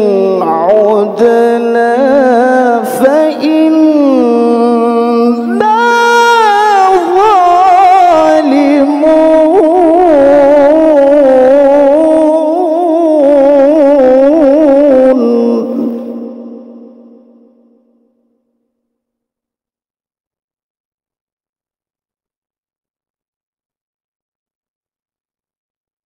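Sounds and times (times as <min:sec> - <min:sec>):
man chanting into a microphone: 0:00.0 - 0:17.5.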